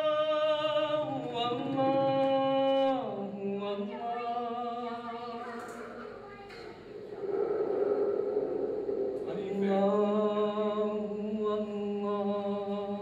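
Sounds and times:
man singing unaccompanied: 0.0 - 5.0, 9.3 - 13.0.

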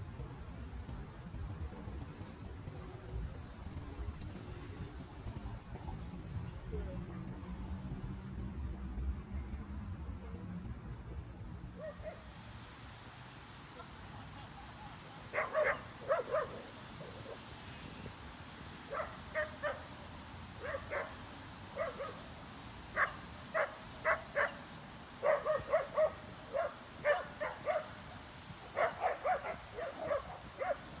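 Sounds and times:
dog barking: 11.8 - 12.2, 15.3 - 16.7, 18.9 - 19.8, 20.6 - 21.2, 21.8 - 22.2, 23.0 - 24.6, 25.2 - 28.0, 28.8 - 30.8.

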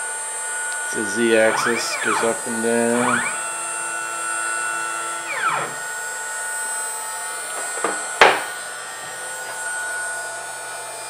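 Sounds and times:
stepper motor whine: 0.5 - 7.2.

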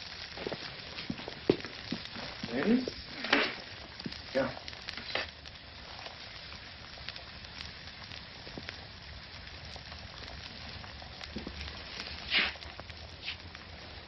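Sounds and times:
steaks sizzling on a grill: 0.0 - 14.0.

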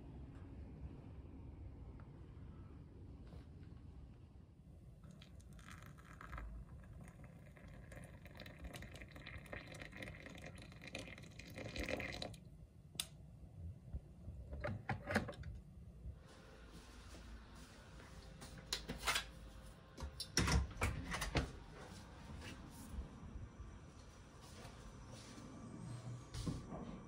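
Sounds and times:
kettle and cups clicking: 5.0 - 12.3
water pouring into a cup: 5.0 - 12.5.

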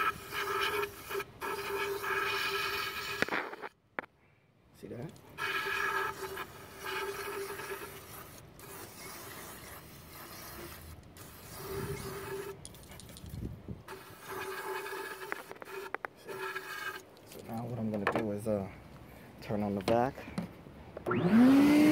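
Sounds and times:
vacuum blowing air: 21.0 - 21.9.

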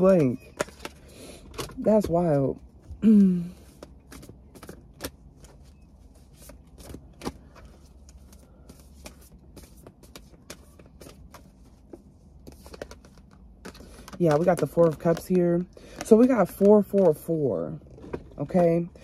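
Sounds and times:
cards being shuffled: 3.4 - 17.2.

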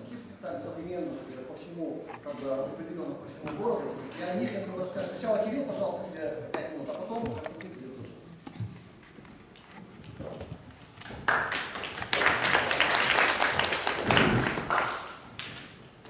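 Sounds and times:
small audience clapping: 10.8 - 15.9.

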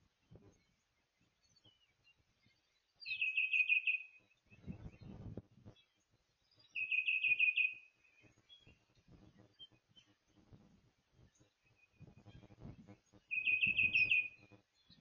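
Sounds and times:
songbird whistling: 3.0 - 4.8, 6.6 - 7.9, 13.3 - 14.4
soft scratchy rustling: 4.5 - 5.8, 8.2 - 14.2.

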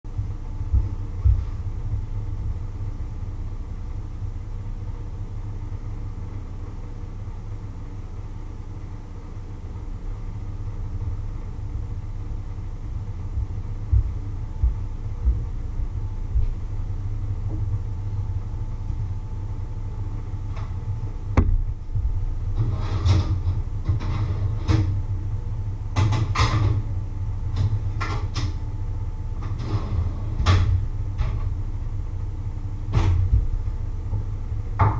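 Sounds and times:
low rumble: 0.1 - 6.0, 10.8 - 24.1.

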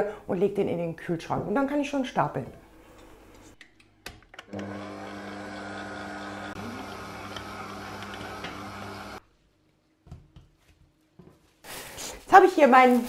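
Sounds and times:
stand mixer motor hum: 4.5 - 9.2.

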